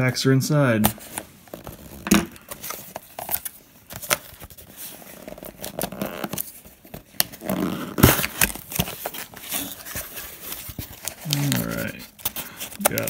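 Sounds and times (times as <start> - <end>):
cardboard flap ripping open: 0.8 - 13.0
cardboard box scraping and rustling: 4.5 - 13.0.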